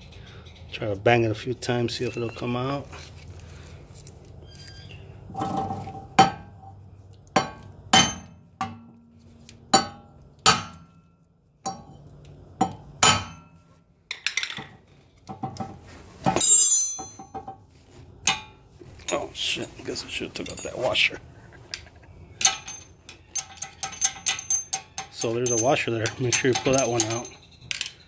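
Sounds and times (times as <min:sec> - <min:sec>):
hammer striking metal: 0:12.6 - 0:13.5
jangling metallic clatter: 0:16.4 - 0:17.3, 0:19.0 - 0:28.0.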